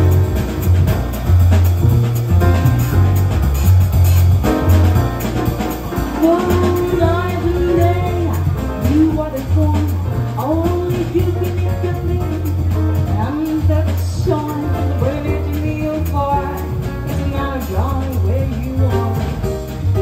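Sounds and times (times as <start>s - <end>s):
double bass notes: 0.0s - 20.0s
jazz combo playing: 0.0s - 20.0s
woman singing a ballad: 6.2s - 19.4s.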